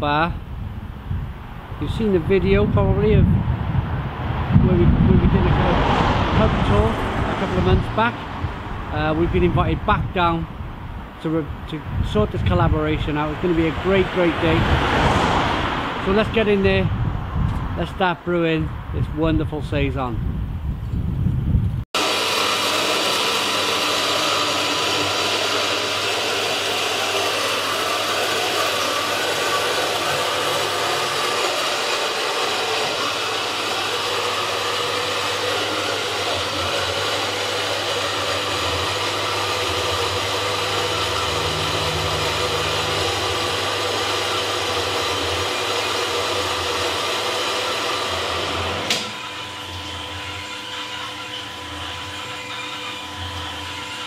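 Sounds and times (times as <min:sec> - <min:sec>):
motor-driven machine whirring: 0:22.0 - 0:54.0.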